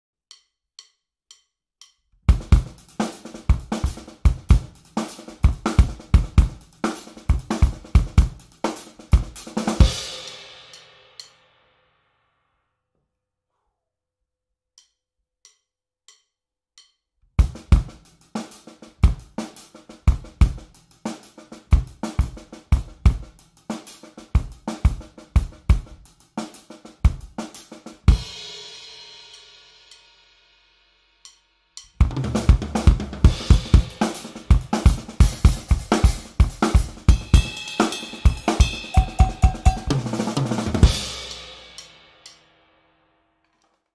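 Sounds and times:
drum kit playing: 2.3s - 11.4s, 17.4s - 30.2s, 31.8s - 42.5s
cymbal crash ringing: 37.7s - 42.2s.

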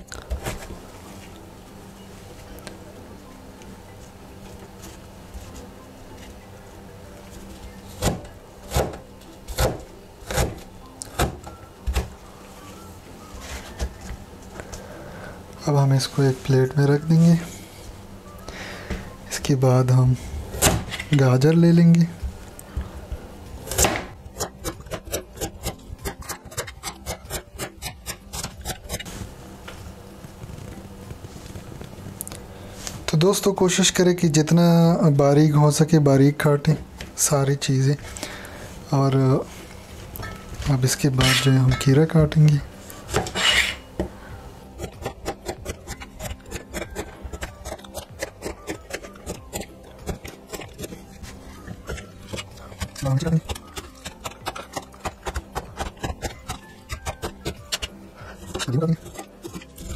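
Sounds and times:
cleaver chopping on cutting board: 23.7s - 25.5s.

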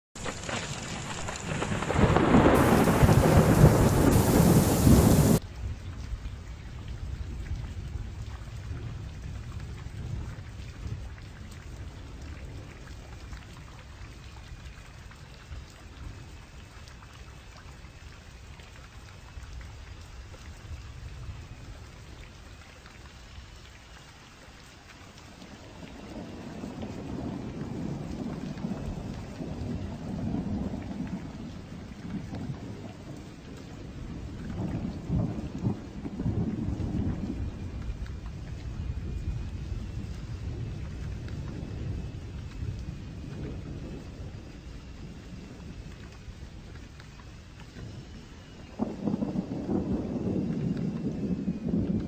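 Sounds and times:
heavy rain: 0.2s - 52.0s
low rolling thunder: 0.4s - 5.4s, 6.8s - 14.9s, 25.5s - 52.0s
thunder crash: 1.2s - 5.4s, 48.8s - 52.0s.

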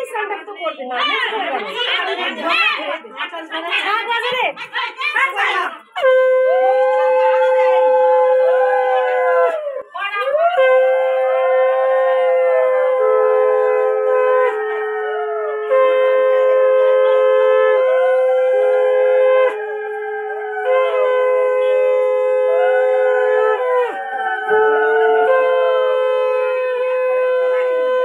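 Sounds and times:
voices wailing: 0.0s - 28.0s
conch shells blown: 5.9s - 9.4s, 10.3s - 28.0s.

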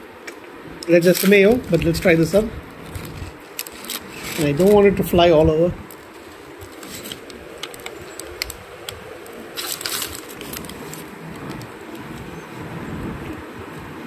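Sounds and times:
paper wrapper crinkling: 2.8s - 4.8s, 5.8s - 12.2s.

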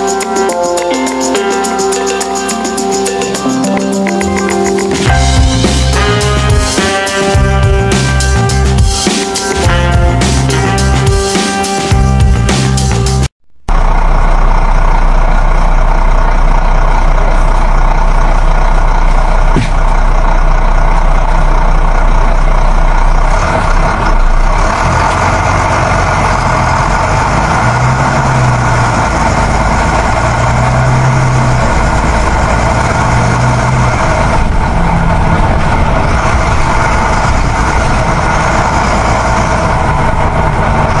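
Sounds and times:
heavy truck engine running: 0.0s - 41.0s.

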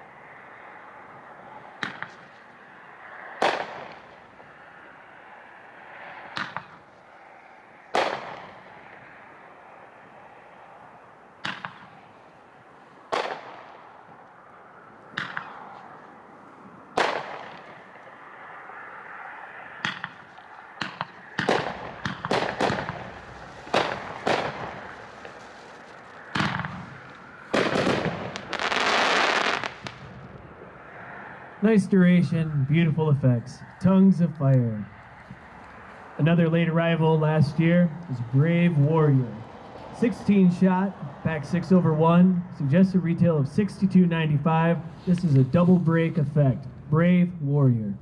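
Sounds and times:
dense firework crackle: 3.4s - 4.6s, 7.9s - 9.1s, 11.4s - 14.3s, 16.9s - 18.1s, 19.9s - 30.8s
fireworks cake firing: 13.1s - 14.0s, 17.0s - 17.9s, 19.9s - 30.3s.

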